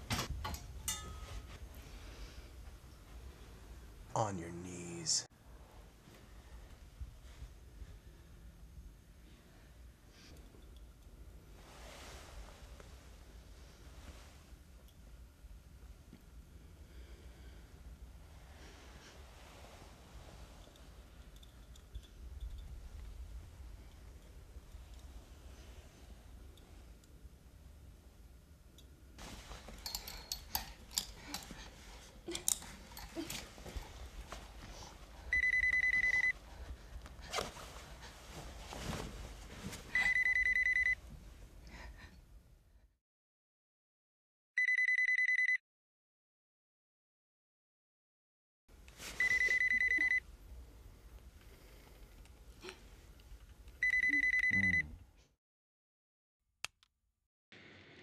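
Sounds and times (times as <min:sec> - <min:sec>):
knocks and rustles of movement: 0:00.0 - 0:03.6, 0:29.2 - 0:35.4, 0:36.3 - 0:40.3
telephone ringing: 0:35.3 - 0:36.3, 0:40.0 - 0:41.0, 0:44.6 - 0:45.6, 0:49.2 - 0:50.2, 0:53.8 - 0:54.8.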